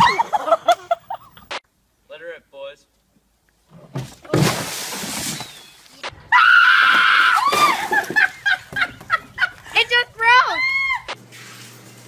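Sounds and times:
water splashing from bucket: 0:04.3 - 0:05.8, 0:06.8 - 0:08.5
woman screaming: 0:06.3 - 0:07.9, 0:10.2 - 0:11.1.

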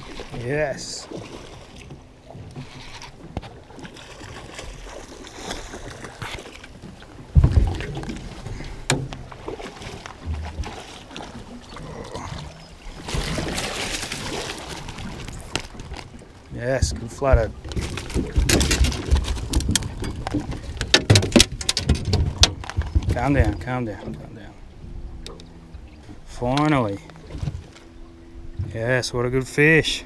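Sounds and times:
fish splashing: 0:02.7 - 0:16.4
heavy thump against boat: 0:07.2 - 0:09.4.

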